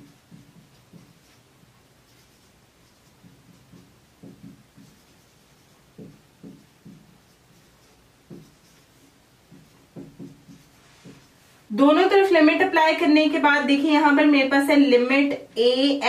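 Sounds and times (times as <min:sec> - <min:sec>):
marker squeaking on whiteboard: 0:00.0 - 0:11.4.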